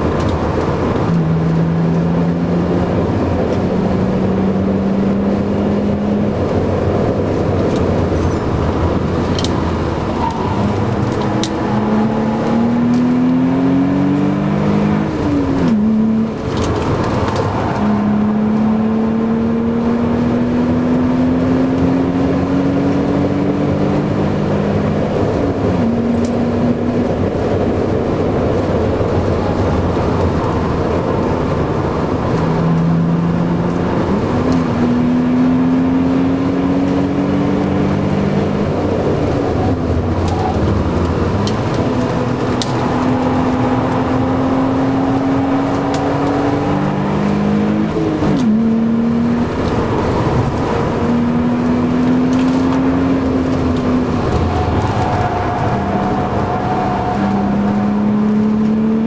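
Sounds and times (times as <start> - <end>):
car engine under hard driving: 0.0 - 59.0
road and wind noise: 0.0 - 59.0.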